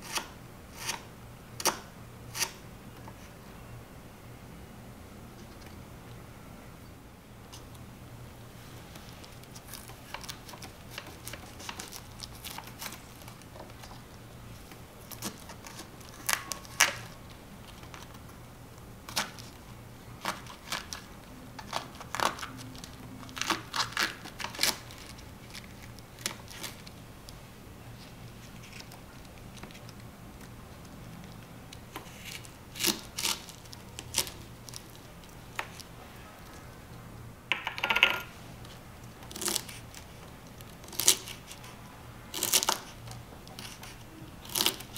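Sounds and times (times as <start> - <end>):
cabbage leaves tearing and snapping: 15.1 - 18.2, 20.2 - 26.9, 32.0 - 35.9, 39.2 - 41.7, 42.3 - 44.9.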